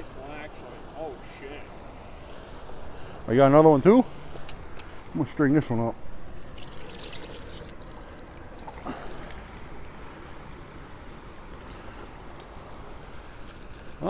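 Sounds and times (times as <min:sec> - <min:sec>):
water rushing through spillway: 0:06.0 - 0:14.0.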